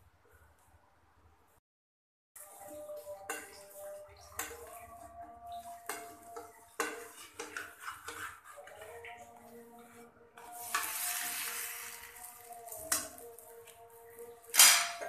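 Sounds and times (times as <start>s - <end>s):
metal spoon scraping frying pan: 5.5s - 9.2s, 10.4s - 13.2s.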